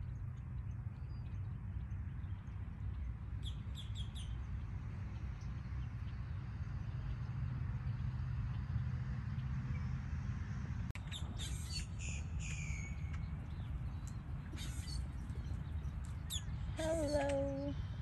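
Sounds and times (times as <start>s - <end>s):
steady low rumble: 0.0s - 18.0s
small bird chirping: 11.0s - 17.8s.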